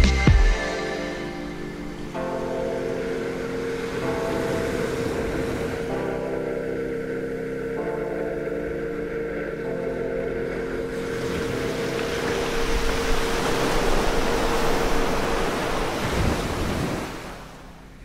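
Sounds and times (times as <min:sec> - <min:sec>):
held music chord: 0:00.0 - 0:16.8
rushing surging water: 0:10.9 - 0:17.7.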